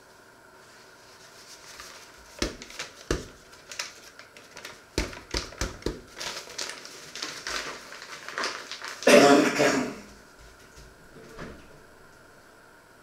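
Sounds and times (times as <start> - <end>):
paper bag rustling: 0.6 - 9.4.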